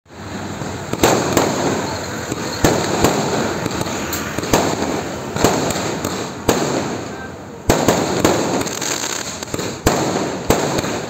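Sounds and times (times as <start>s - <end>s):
fireworks bangs: 0.1s - 11.0s
fireworks crackle and hiss: 0.1s - 11.0s.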